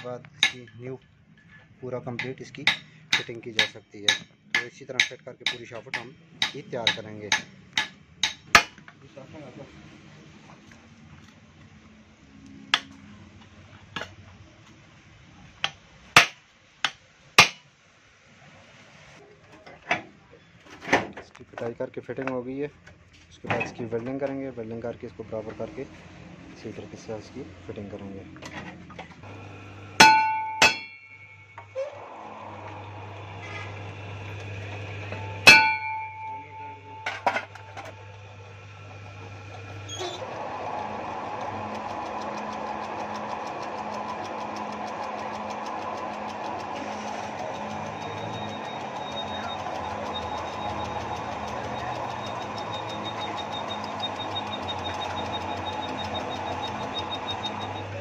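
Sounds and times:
hammer striking steel tube: 0:00.0 - 0:00.7, 0:02.2 - 0:08.8, 0:16.2 - 0:17.6, 0:30.0 - 0:31.6, 0:35.4 - 0:37.6
hammer knocking on metal: 0:30.0 - 0:31.2.

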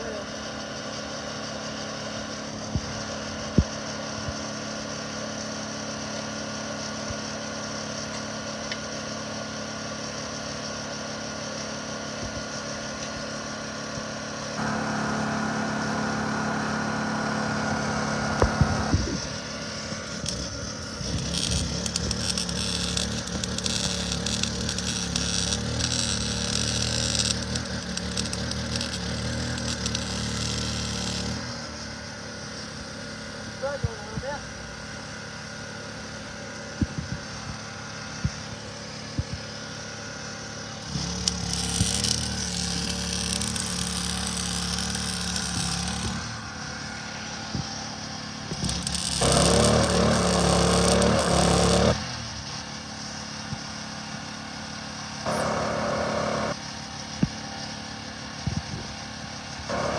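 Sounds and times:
generator running: 0:00.0 - 0:59.9
welder arc crackling: 0:18.3 - 0:31.6, 0:40.7 - 0:46.8, 0:47.5 - 0:52.1.

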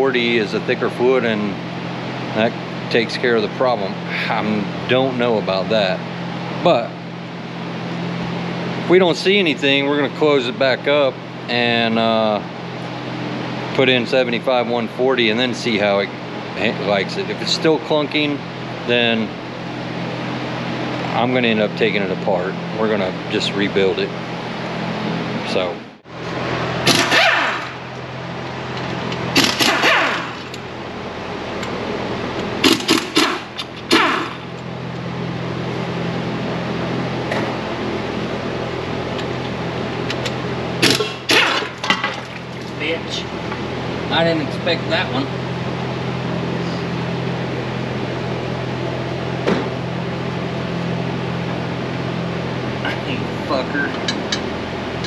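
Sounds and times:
fan humming: 0:00.0 - 0:55.0
impact wrench bursts: 0:26.8 - 0:27.8, 0:29.3 - 0:30.6, 0:32.6 - 0:34.5, 0:40.8 - 0:41.9.

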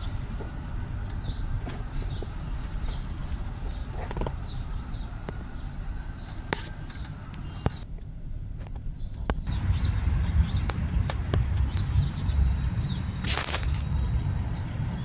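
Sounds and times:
low street rumble: 0:00.0 - 0:15.0
bird chirps: 0:09.0 - 0:13.2.

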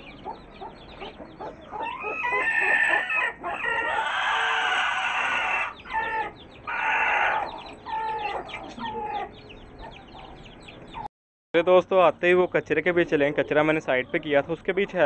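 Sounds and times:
chicks peeping: 0:00.0 - 0:11.1, 0:12.2 - 0:15.0
adult chicken harsh call: 0:01.8 - 0:09.3.

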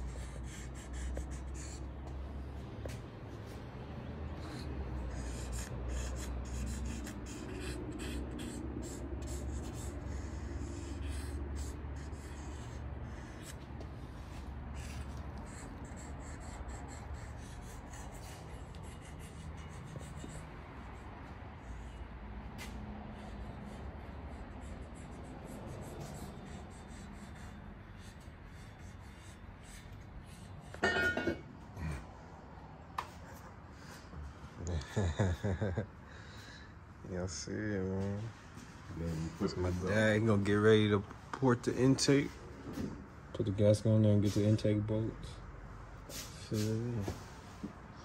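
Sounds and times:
pencil scratching on gasket: 0:00.0 - 0:02.2, 0:04.3 - 0:22.0, 0:22.6 - 0:31.3.

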